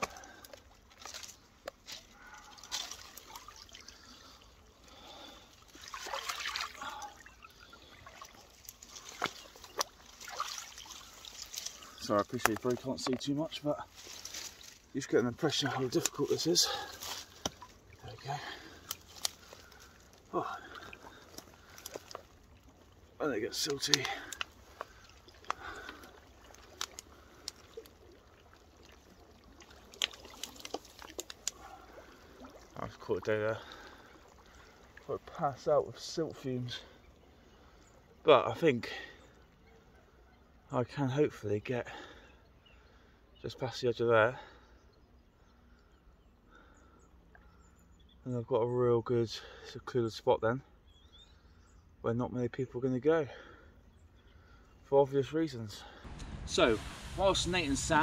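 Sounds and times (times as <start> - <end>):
twigs snapping: 0.0 - 3.7, 8.3 - 13.3, 13.9 - 14.8, 15.8 - 17.8, 18.6 - 22.4, 23.6 - 28.1, 29.5 - 31.6
rustle of wet weed and twigs: 0.0 - 43.8, 52.8 - 58.0
water trickling and splashing: 0.0 - 48.0, 53.3 - 58.0.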